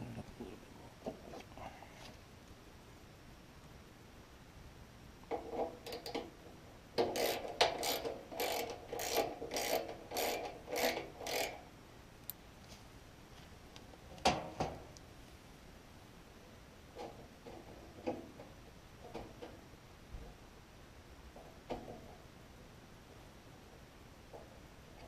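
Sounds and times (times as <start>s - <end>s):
socket ratchet ratcheting: 7.0s - 11.6s.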